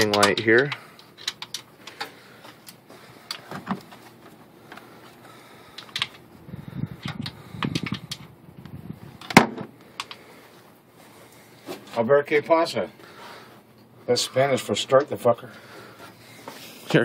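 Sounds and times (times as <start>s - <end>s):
timing light leads clicking and rattling: 0.0s - 6.3s, 7.0s - 10.3s.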